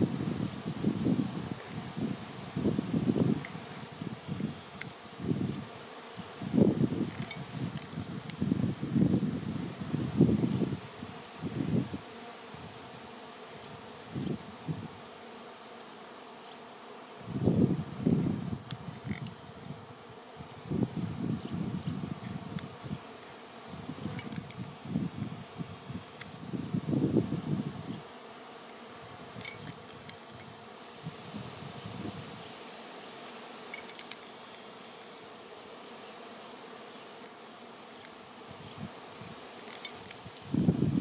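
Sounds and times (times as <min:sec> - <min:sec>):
wind noise on microphone: 0:00.0 - 0:05.8, 0:06.4 - 0:13.0, 0:13.6 - 0:15.0, 0:17.2 - 0:23.1, 0:23.7 - 0:28.1, 0:29.0 - 0:32.5, 0:38.5 - 0:41.0
bee swarm buzzing: 0:00.0 - 0:41.0.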